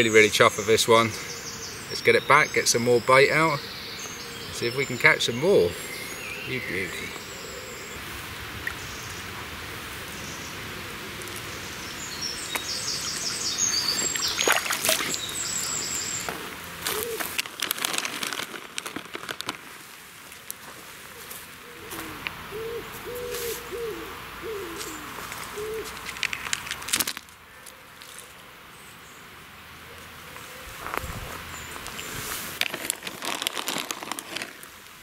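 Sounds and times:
bird cooing: 5.8s - 8.0s, 15.6s - 17.4s, 21.1s - 26.0s
small bird singing trills: 11.5s - 16.3s
plastic bag crinkling: 16.8s - 20.0s, 26.0s - 27.4s, 32.5s - 34.9s.

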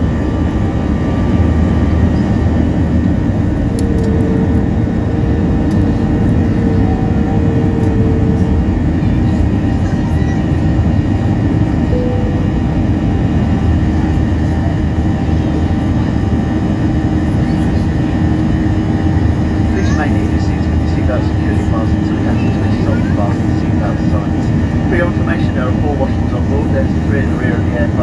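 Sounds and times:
jet engine rumble in cabin: 0.0s - 28.0s
faint humming tone: 11.9s - 13.6s.

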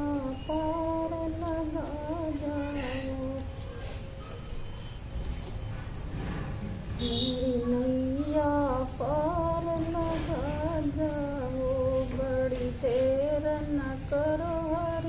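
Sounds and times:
woman singing unaccompanied: 0.0s - 3.8s, 7.0s - 15.0s.

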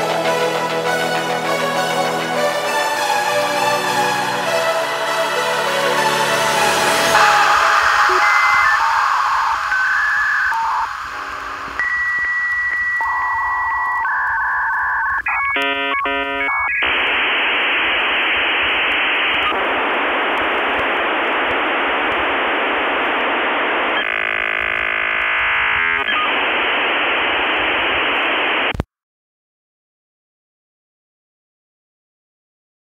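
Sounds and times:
modem hiss: 5.9s - 28.9s
dial-up modem tones: 7.2s - 28.8s.

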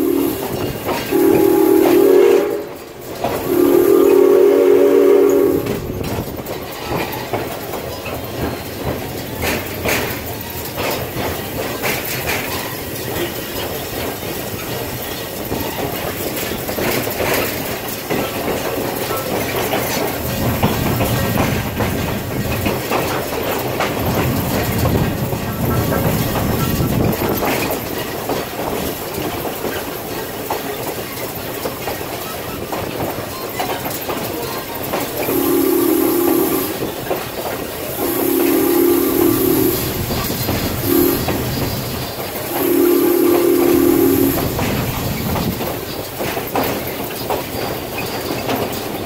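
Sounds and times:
steam whistle blasts: 0.0s - 2.8s, 3.4s - 5.8s, 35.2s - 37.0s, 37.9s - 41.6s, 42.5s - 44.6s
train running rumble: 0.0s - 49.0s
wheels clicking over rail joints: 0.0s - 49.0s.

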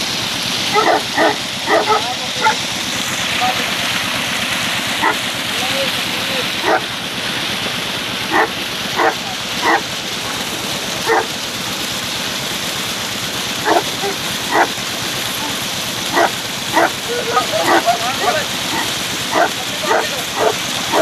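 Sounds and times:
water rushing in a channel: 0.0s - 21.0s
dog barking: 0.7s - 2.6s, 5.0s - 5.2s, 6.6s - 6.9s, 8.3s - 9.9s, 11.0s - 11.4s, 13.6s - 14.8s, 15.4s - 21.0s.

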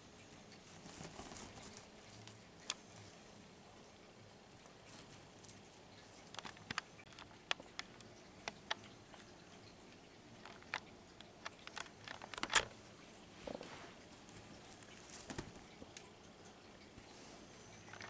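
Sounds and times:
kitten tapping and rustling: 10.3s - 12.8s, 13.5s - 16.2s.

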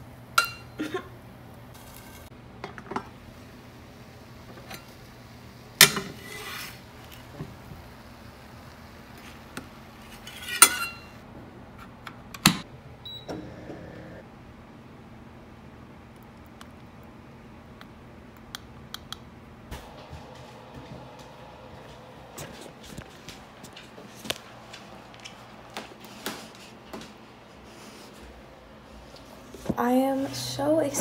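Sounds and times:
low hum: 19.7s - 24.0s.

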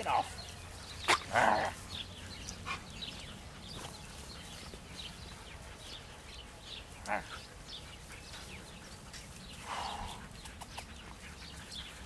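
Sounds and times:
dogs scuffling on dry grass: 0.0s - 12.0s.

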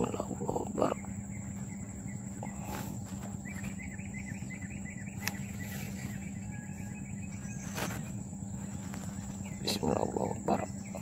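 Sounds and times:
insect chirring: 0.0s - 11.0s.

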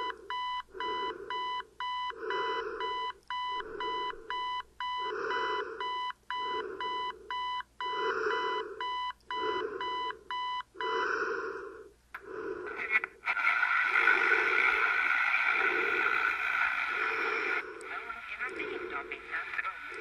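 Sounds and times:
digital alarm clock beeping: 0.0s - 11.0s.

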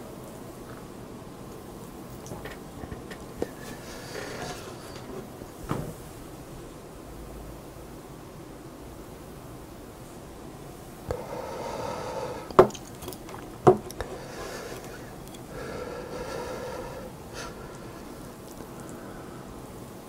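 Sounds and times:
steady pitched hum: 0.0s - 20.0s
plate knocking on table: 12.6s - 12.8s, 13.6s - 13.9s.

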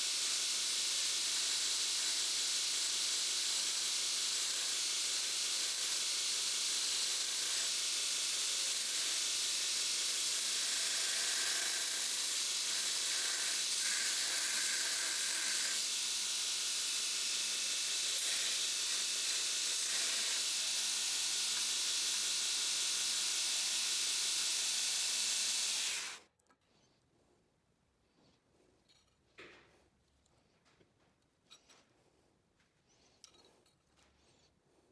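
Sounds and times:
belt grinder grinding steel: 0.0s - 26.3s.

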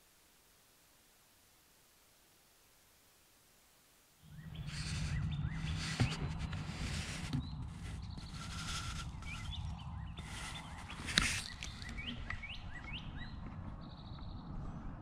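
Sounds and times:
low hum: 4.2s - 15.0s
songbirds chirping: 4.2s - 15.0s
rustling noise: 4.4s - 12.1s.

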